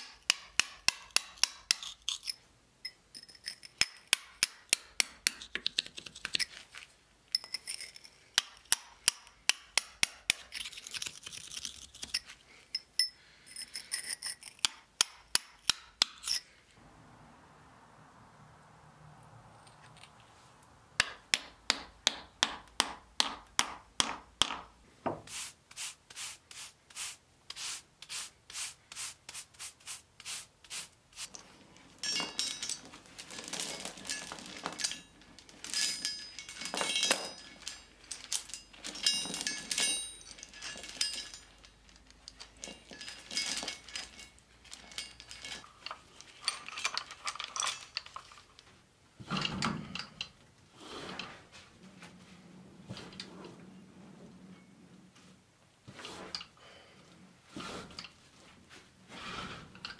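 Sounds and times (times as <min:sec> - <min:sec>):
iron chain rattling and scraping: 0:01.2 - 0:04.7, 0:07.3 - 0:09.0, 0:09.6 - 0:16.7, 0:31.7 - 0:48.6, 0:59.3 - 0:59.9
hammer striking steel: 0:21.0 - 0:24.7.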